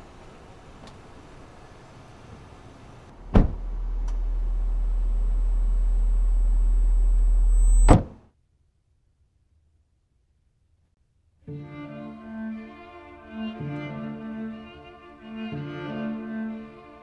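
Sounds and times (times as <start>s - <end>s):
low drone: 3.2s - 7.9s
sharp thud: 3.3s - 4.3s, 7.4s - 8.2s
thin high whine: 3.8s - 8.1s
loud sharp hit: 7.4s - 8.2s.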